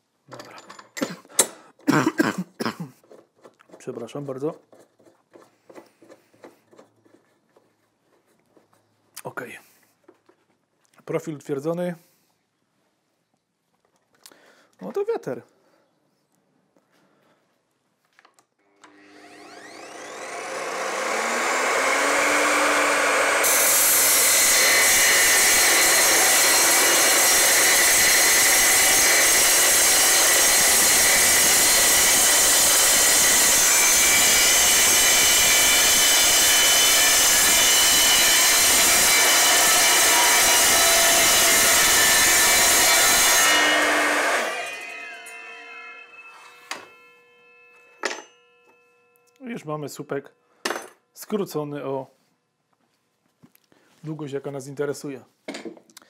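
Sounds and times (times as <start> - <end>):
mitre saw spinning: 18.9 - 49.3
saw blade screeching through metal: 23.4 - 49.2.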